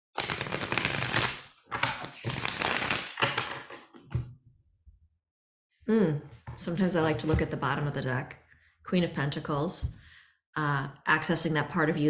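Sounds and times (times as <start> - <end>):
cards being riffle-shuffled: 0.2 - 3.9.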